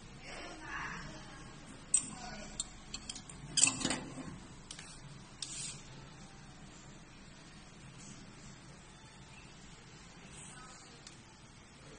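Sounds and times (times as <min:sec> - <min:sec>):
metal clicks and clinks: 0:01.9 - 0:04.0.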